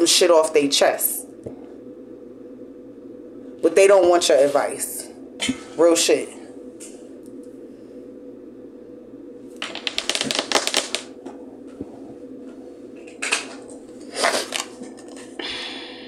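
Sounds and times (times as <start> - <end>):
cards rustling: 9.6 - 11.1
cards shuffling clicks: 9.6 - 11.1.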